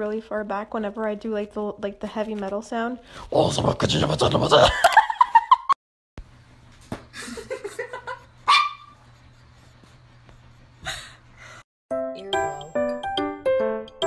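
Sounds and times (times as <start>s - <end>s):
dog sharp yip-like bark: 8.5s - 9.0s
music: 11.9s - 14.0s.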